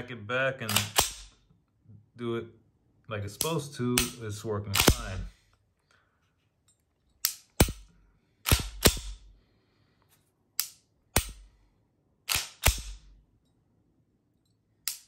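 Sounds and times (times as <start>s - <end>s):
pistol slide racking clacks: 0.7s - 1.3s.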